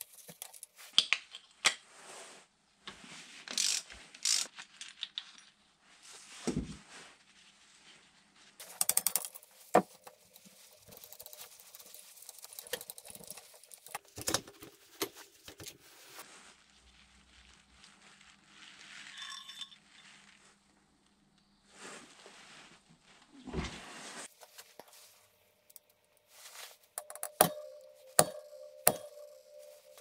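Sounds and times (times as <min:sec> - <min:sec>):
metal parts and tools clinking: 0:00.0 - 0:00.7, 0:27.0 - 0:30.0.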